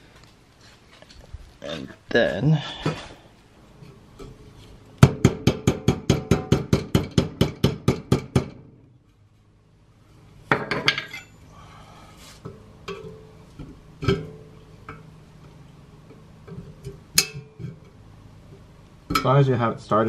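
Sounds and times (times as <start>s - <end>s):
metal-on-metal tapping: 16.1s - 18.0s.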